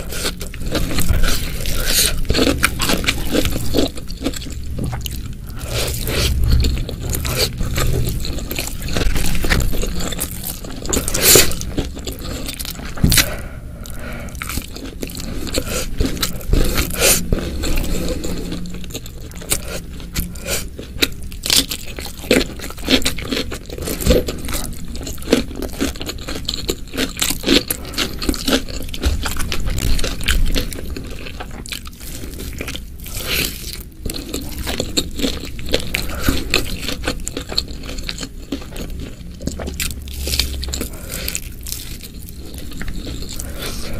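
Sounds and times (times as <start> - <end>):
crunchy bites and chewing: 0.0 - 43.9.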